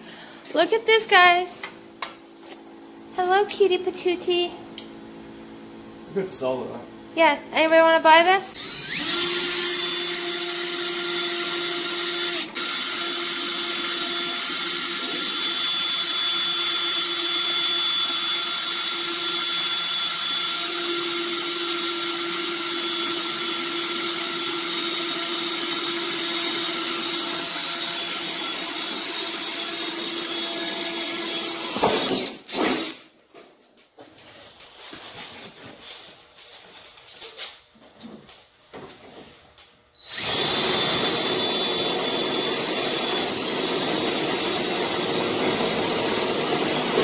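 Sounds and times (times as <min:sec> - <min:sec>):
cordless drill whining: 0:08.5 - 0:33.0, 0:40.0 - 0:47.0.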